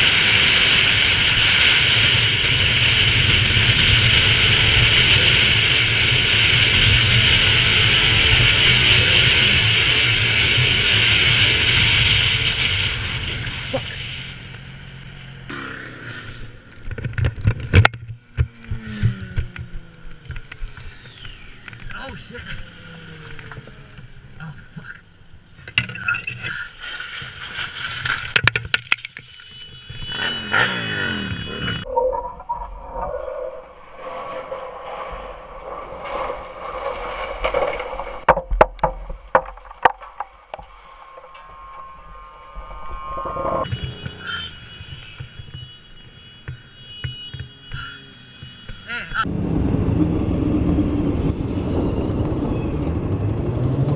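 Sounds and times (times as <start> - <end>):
motorcycle crashing through brush: 26.7 - 31.8
sharp knocks and cracks: 37.5 - 40.7.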